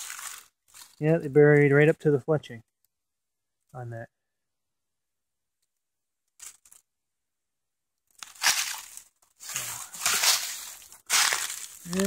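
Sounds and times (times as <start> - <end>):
footsteps crunching dry leaves: 0.0 - 1.1, 8.1 - 12.0
leaves rustling: 0.0 - 1.1, 8.1 - 12.0.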